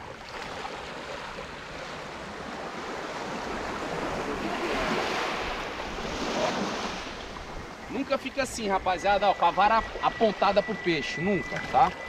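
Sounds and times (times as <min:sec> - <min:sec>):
surf washing up the beach: 0:01.8 - 0:10.8.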